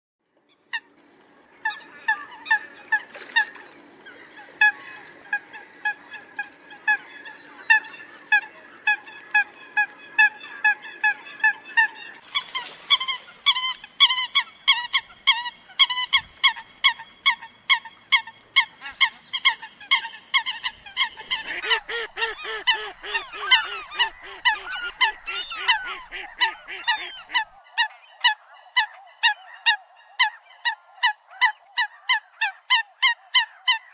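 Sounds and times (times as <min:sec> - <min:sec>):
coots calling: 0:01.6 - 0:33.9
lower-pitched bird calls: 0:11.3 - 0:33.9.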